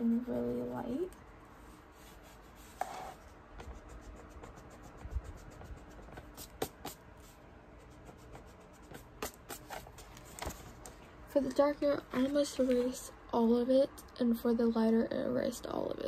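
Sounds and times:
pencil scratching on paper: 0:00.0 - 0:10.1
eraser rubbing paper: 0:00.0 - 0:10.2.

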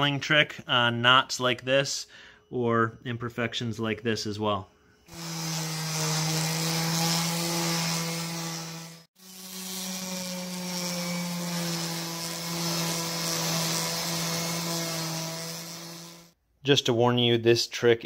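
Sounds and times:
orbital sander sanding wood: 0:05.1 - 0:16.4.

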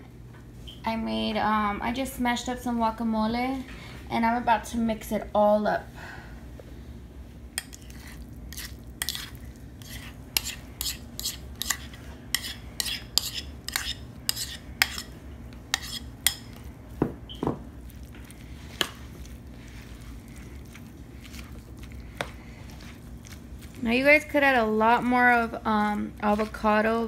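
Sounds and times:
utensil scraping bowl: 0:07.6 - 0:16.7, 0:18.0 - 0:27.0.

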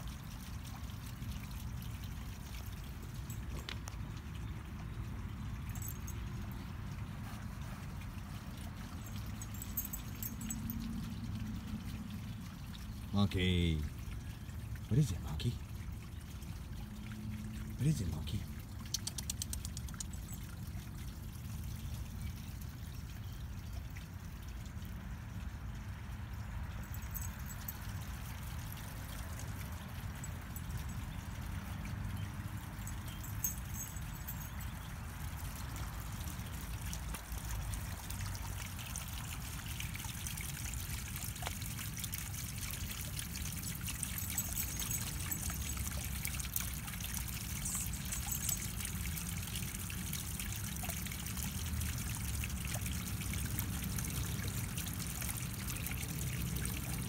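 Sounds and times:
water trickling into pond: 0:00.0 - 0:57.0.

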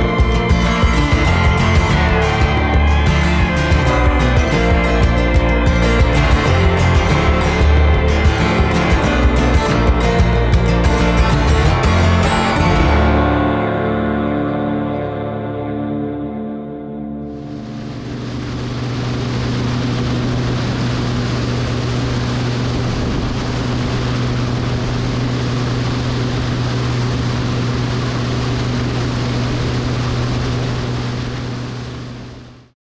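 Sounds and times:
aircraft engine and propeller drone: 0:00.0 - 0:13.4, 0:17.2 - 0:32.7
airflow rushing: 0:17.2 - 0:32.6.

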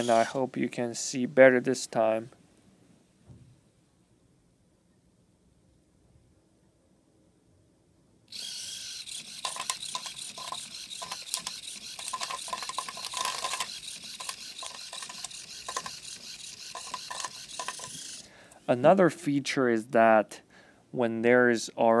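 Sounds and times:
servo motor churning dry kibble: 0:00.0 - 0:00.4, 0:08.3 - 0:18.4.

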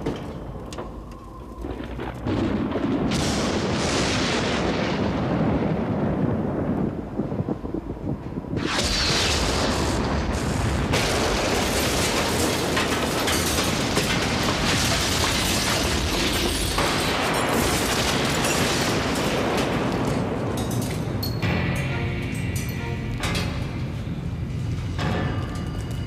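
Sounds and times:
explosion: 0:01.6 - 0:20.6.

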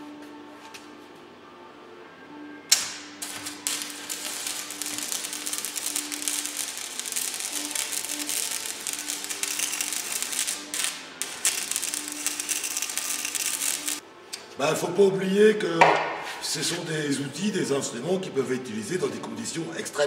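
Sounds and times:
welding arc crackling: 0:02.7 - 0:14.0
welding arc popping: 0:02.7 - 0:14.0.

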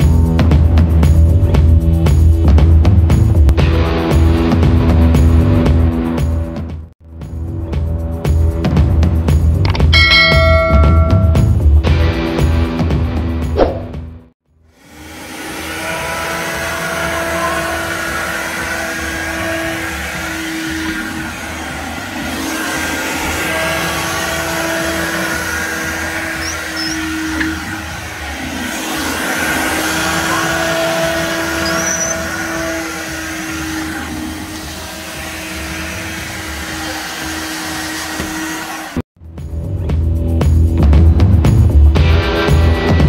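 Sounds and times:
window vacuum motor humming: 0:14.7 - 0:39.0.

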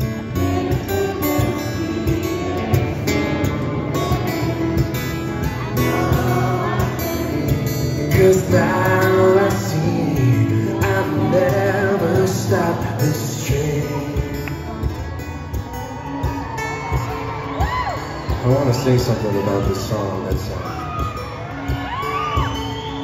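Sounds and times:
acoustic guitar over sound system: 0:00.0 - 0:23.0
crowd singing and cheering: 0:00.0 - 0:23.0.

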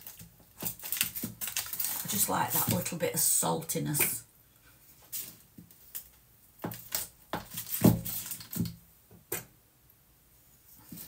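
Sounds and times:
wrapper rustling: 0:00.0 - 0:03.0, 0:05.0 - 0:08.8.

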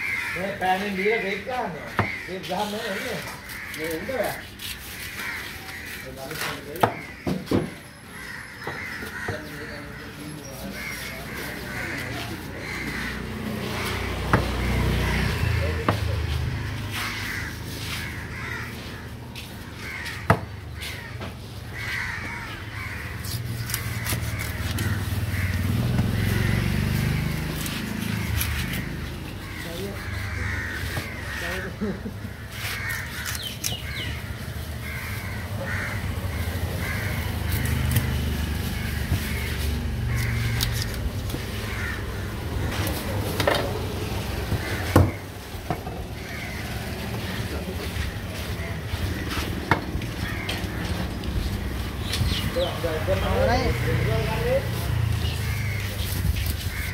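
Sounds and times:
crows cawing: 0:00.0 - 0:56.9
cleaver chopping on wooden block: 0:06.8 - 0:07.8, 0:20.2 - 0:20.5, 0:44.5 - 0:45.8.

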